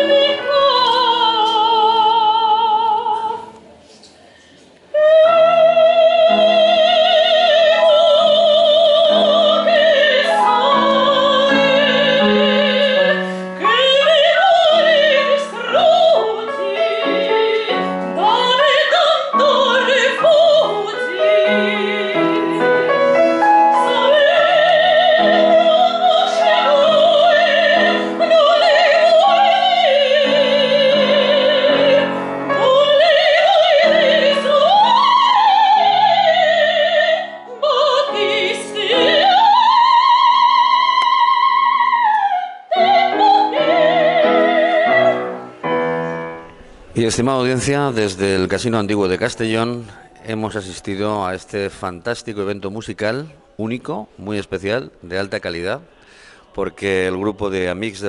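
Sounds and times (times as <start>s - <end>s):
soprano singing operatic aria: 0.0s - 3.6s, 4.9s - 46.5s
piano accompaniment: 0.0s - 3.8s, 5.0s - 58.0s.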